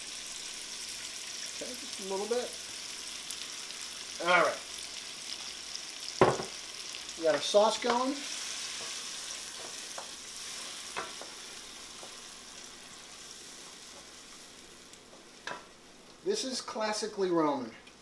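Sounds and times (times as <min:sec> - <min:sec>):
sauce sizzling in a skillet: 0:00.0 - 0:18.0
wooden spoon knocking pan: 0:06.2 - 0:06.6.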